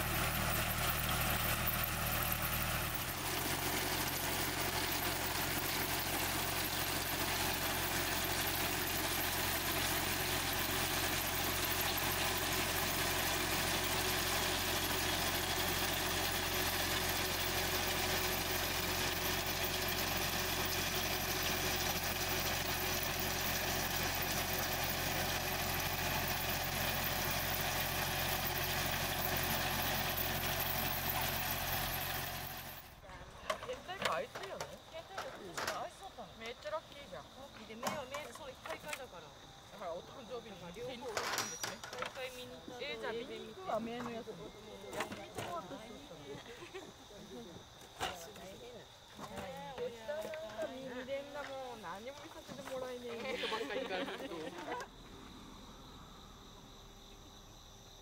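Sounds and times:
root digger conveyor shaking: 0.0 - 32.9
tractor engine running under load: 0.0 - 34.6.

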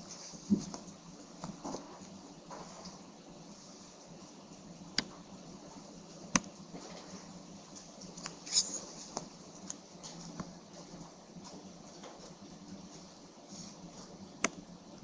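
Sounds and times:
low steady hiss: 0.0 - 15.0
faint clicks and taps: 4.5 - 5.3, 6.2 - 13.2, 13.9 - 14.7.

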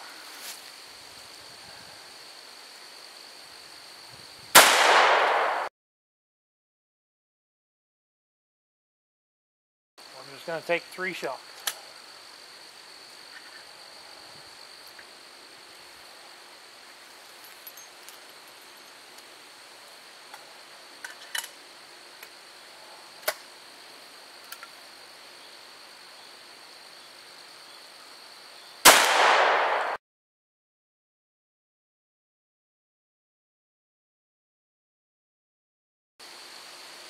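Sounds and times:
insects buzzing: 0.0 - 5.6, 10.0 - 30.0, 36.2 - 37.0
gunshot: 4.6 - 5.7, 28.8 - 30.0.

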